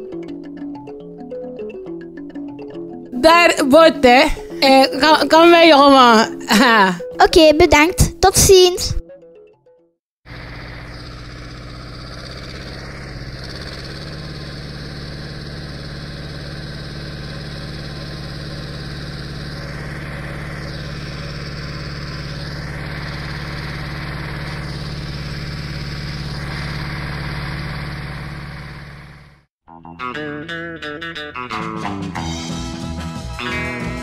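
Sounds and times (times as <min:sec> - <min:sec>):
boat engine humming: 0:10.2 - 0:29.5.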